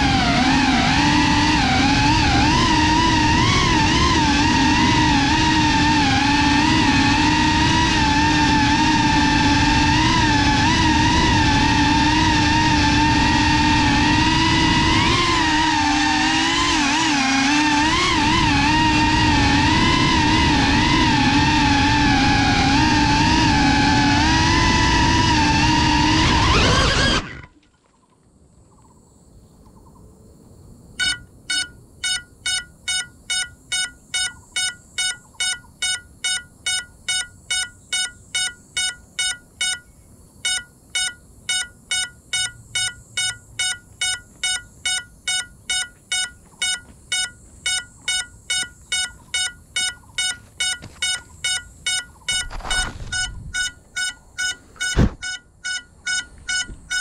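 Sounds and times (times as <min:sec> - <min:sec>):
drone motors whining: 0:00.0 - 0:27.6, 0:31.0 - 0:57.0
rustle: 0:26.4 - 0:31.0, 0:52.1 - 0:55.2
alarm beeping: 0:31.0 - 0:57.0
sharp knock: 0:54.8 - 0:55.2.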